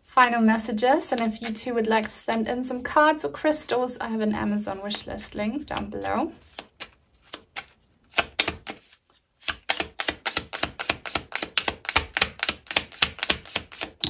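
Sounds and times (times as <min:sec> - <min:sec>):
cards being shuffled: 0:00.0 - 0:02.4, 0:05.7 - 0:14.0
card slaps: 0:06.5 - 0:08.8.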